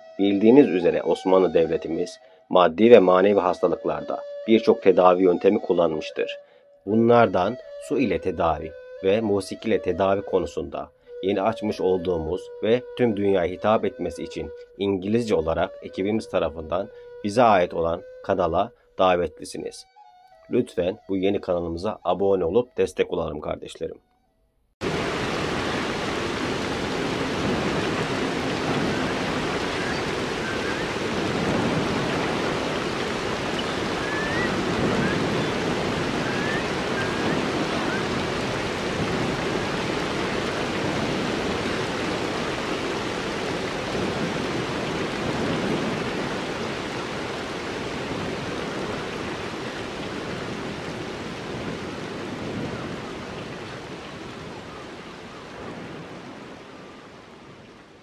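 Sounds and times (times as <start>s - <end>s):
rushing water: 24.8s - 58.0s
faint bird chirps: 29.7s - 31.0s, 33.5s - 35.6s.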